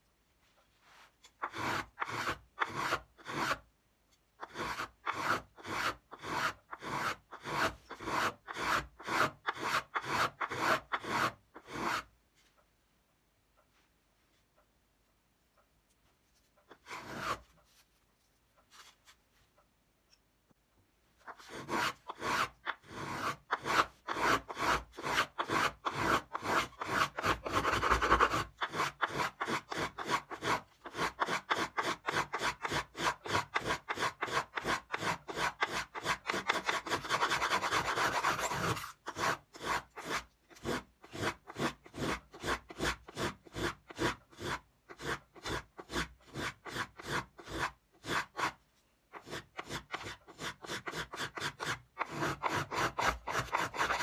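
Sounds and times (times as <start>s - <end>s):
plane shaving wood: 1.4s - 3.6s, 4.4s - 12.1s, 16.7s - 17.5s, 21.3s - 48.6s, 49.2s - 54.0s.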